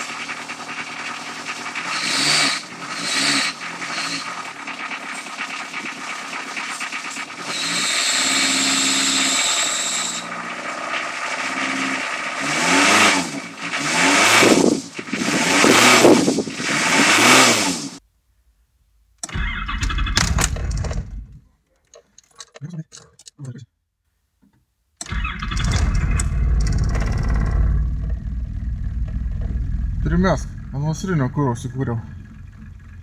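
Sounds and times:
engine revving: 0.0 - 18.0, 25.0 - 33.0
low rumble: 19.4 - 21.5, 25.1 - 33.0
diesel engine idling: 25.0 - 33.0
high whine: 25.0 - 33.0.

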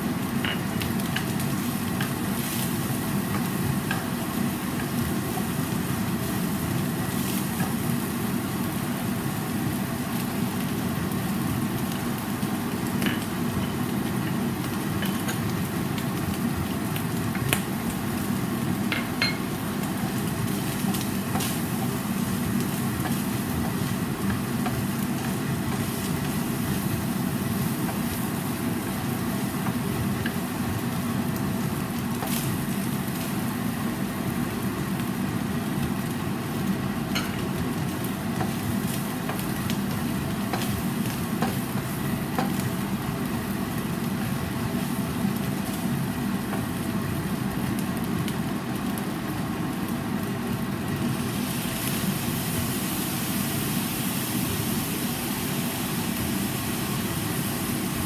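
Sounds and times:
food sizzling in frying pan: 0.0 - 58.0
spatula tapping and scraping: 39.2 - 40.8, 41.4 - 41.6.

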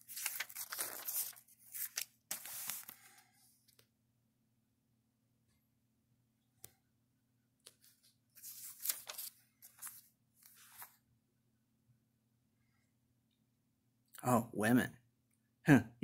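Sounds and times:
paper pages rustling: 0.0 - 3.8, 7.7 - 11.0.

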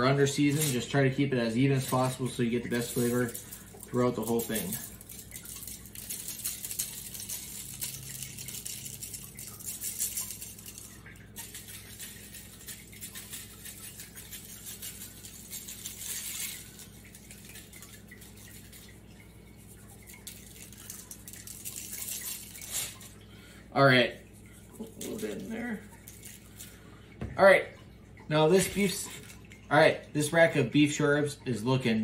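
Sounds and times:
spice shaker rattling: 0.2 - 23.2, 24.3 - 26.8.

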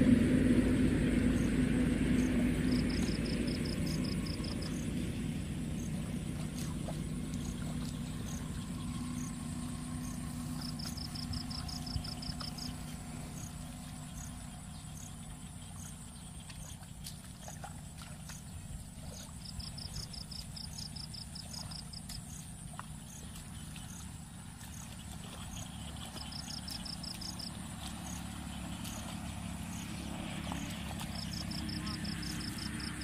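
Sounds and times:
insect rapid trills: 0.0 - 33.0
insects droning: 0.0 - 33.0
low steady hum: 0.0 - 33.0
insect high ticks: 2.2 - 33.0.

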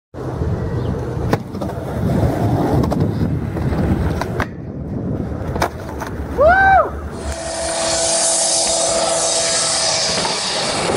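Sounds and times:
skateboard wheels rolling on concrete: 0.2 - 7.6, 10.1 - 10.9
skateboard clacking on ground: 0.9 - 6.4.

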